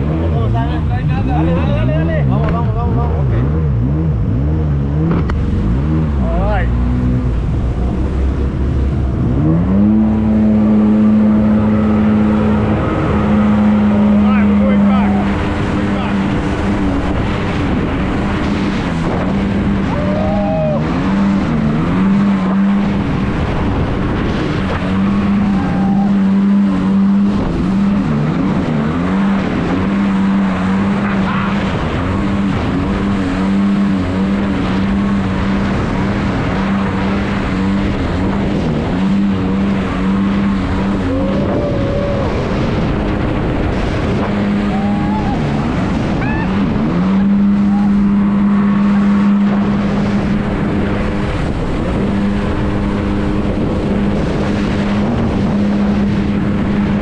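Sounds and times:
loud wash of noise: 0.0 - 57.0
motorboat engine running: 0.0 - 57.0.

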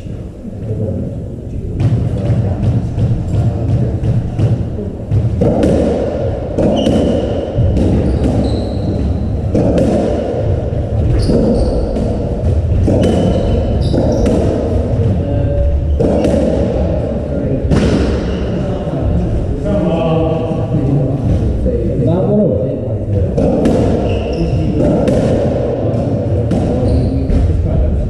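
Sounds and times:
rackets striking ball: 1.8 - 15.2, 15.9 - 18.7, 23.2 - 27.6
shoes squeaking on wooden floor: 6.6 - 9.7, 10.6 - 15.0, 23.9 - 24.8, 26.8 - 27.4.

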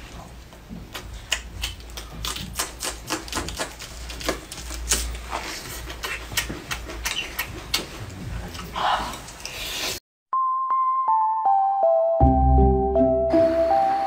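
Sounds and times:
person chewing crunchy food: 0.7 - 10.0.

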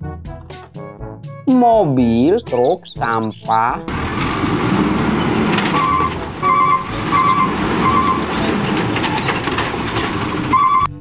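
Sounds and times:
garbage truck engine rumble: 3.9 - 11.0
hydraulic arm lifting cart: 3.9 - 11.0.

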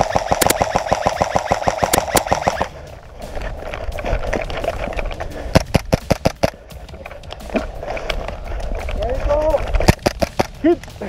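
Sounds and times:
airsoft rifle firing full auto: 0.0 - 2.7.

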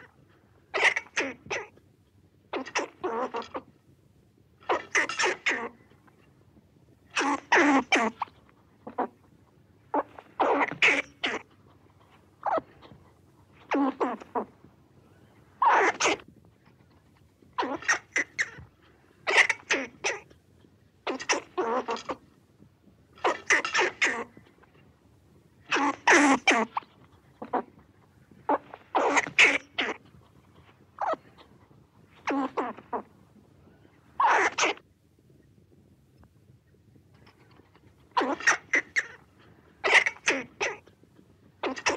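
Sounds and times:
squirrel barking: 4.7 - 5.8, 7.1 - 8.2, 9.9 - 11.5, 15.6 - 16.2, 17.6 - 18.6, 19.2 - 20.3, 21.0 - 22.2, 23.2 - 24.3, 25.7 - 26.8, 28.5 - 30.0, 31.0 - 31.5, 34.2 - 34.8, 38.2 - 39.2, 39.8 - 40.8.

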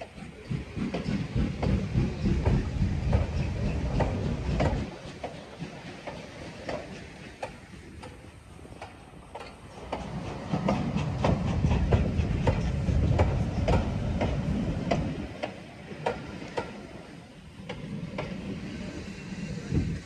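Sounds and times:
wheels clicking over rail joints: 0.0 - 18.8
train coaches rumbling past: 0.0 - 20.0.

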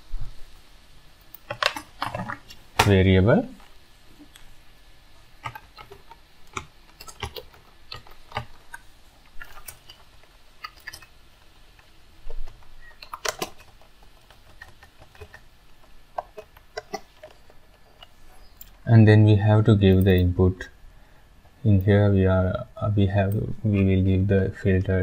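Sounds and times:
computer keyboard typing: 5.4 - 8.7, 9.4 - 17.5.

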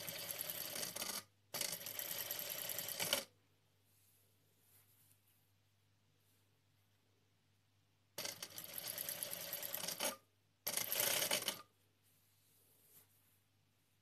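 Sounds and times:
industrial sewing machine stitching: 0.0 - 3.3, 8.2 - 11.6.

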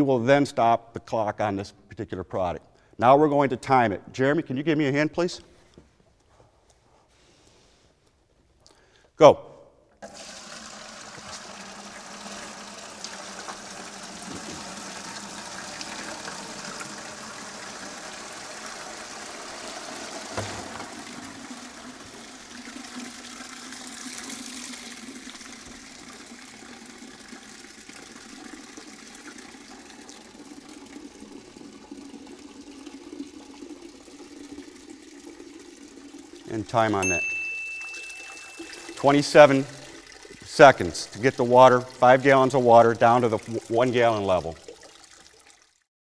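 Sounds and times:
water pouring and draining: 10.0 - 45.9.

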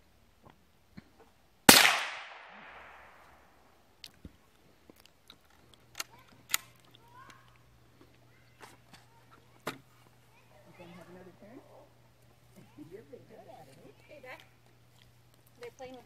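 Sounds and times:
rifle shot: 1.7 - 3.5.

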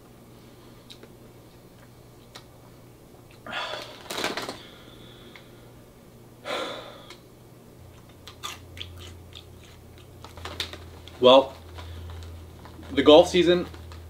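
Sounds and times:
plastic snack bag crinkling: 3.7 - 4.7, 9.6 - 14.0.

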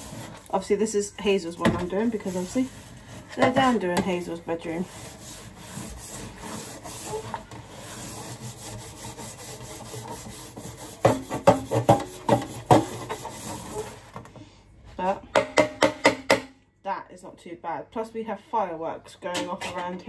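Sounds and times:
metal strip being scrubbed: 1.3 - 14.0.

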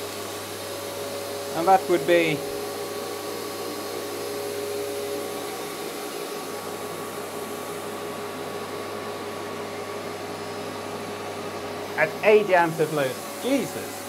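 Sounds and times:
vacuum cleaner droning: 0.0 - 14.0.

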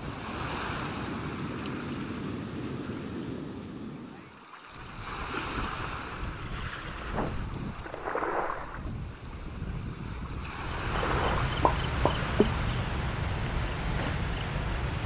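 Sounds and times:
waves washing on shore: 0.0 - 15.0
wind buffeting microphone: 4.8 - 15.0.

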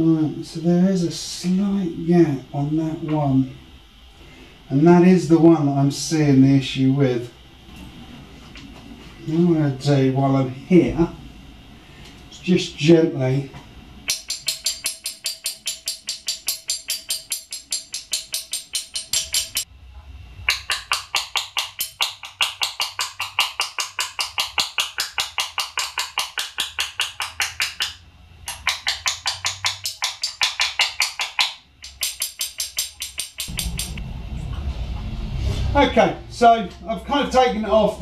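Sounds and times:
tool tapping metal caliper: 14.1 - 19.7, 20.5 - 34.0.

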